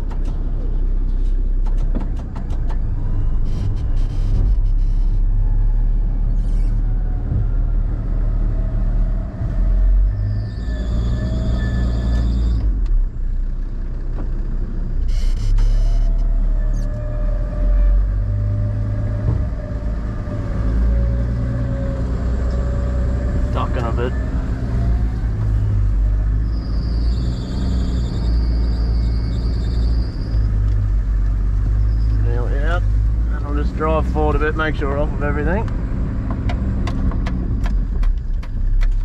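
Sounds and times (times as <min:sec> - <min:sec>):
high-pitched squeal: 0:09.6 - 0:12.7, 0:19.7 - 0:32.8.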